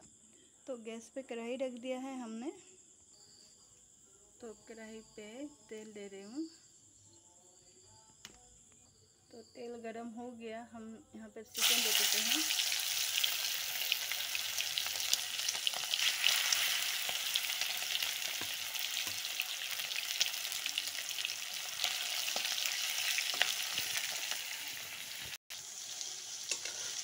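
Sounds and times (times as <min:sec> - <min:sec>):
chicken frying in hot oil: 0:11.6 - 0:27.0.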